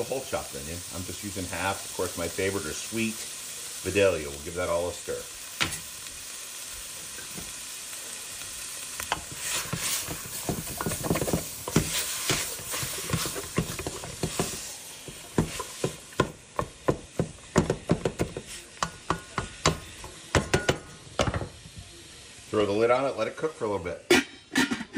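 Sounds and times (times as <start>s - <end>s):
meat and onion sizzling: 0.0s - 24.9s
wooden spatula scraping meat: 9.0s - 16.2s, 17.2s - 19.0s.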